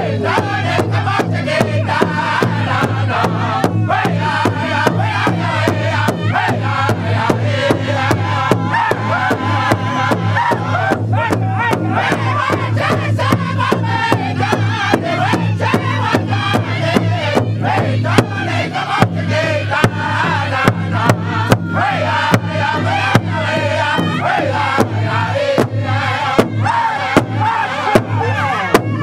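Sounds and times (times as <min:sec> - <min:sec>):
group singing in unison: 0:00.0 - 0:29.0
large drum struck with drumsticks: 0:19.0 - 0:25.0, 0:25.6 - 0:29.0.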